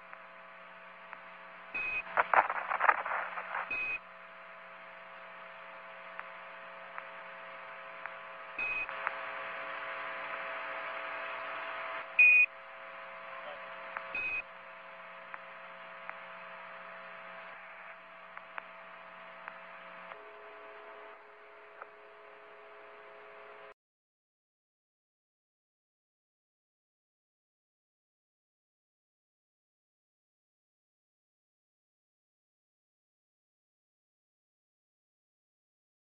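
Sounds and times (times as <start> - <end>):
hum of steady tones: 0.0 - 23.8
radio static hiss: 0.0 - 23.8.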